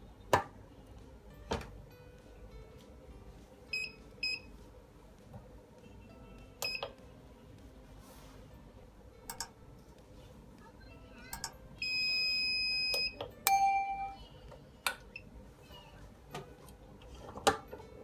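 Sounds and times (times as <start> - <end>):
heat press controller beeping: 6.5 - 7.0, 11.3 - 14.2
ringing ding: 13.4 - 14.2.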